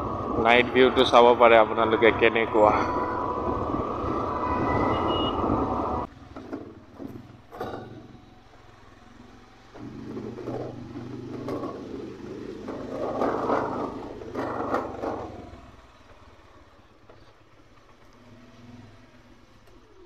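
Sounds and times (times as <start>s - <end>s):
motorcycle engine running: 5.2s - 20.0s.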